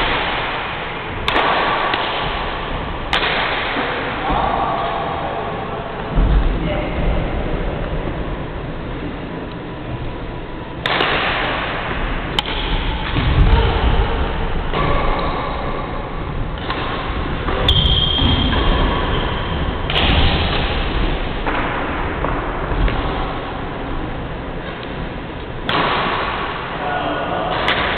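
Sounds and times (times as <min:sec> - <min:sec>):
racket hitting shuttlecock: 0:00.0 - 0:04.0, 0:10.8 - 0:11.7, 0:12.3 - 0:13.6, 0:16.6 - 0:19.0, 0:19.9 - 0:23.2, 0:25.6 - 0:26.7, 0:27.5 - 0:27.9
steady noisy rumble: 0:00.0 - 0:27.9.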